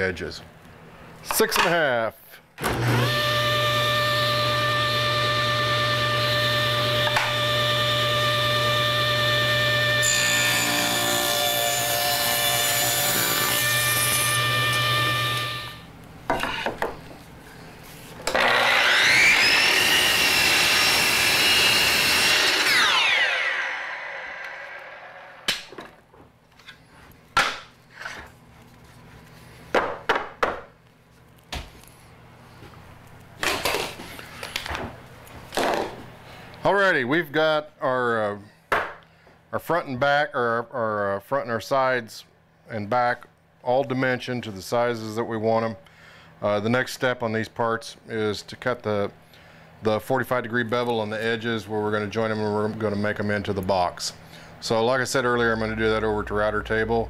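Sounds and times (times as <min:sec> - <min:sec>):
miter saw whining: 0:02.6 - 0:15.8, 0:18.3 - 0:25.5
table saw ripping a board: 0:02.6 - 0:15.8, 0:18.2 - 0:25.7.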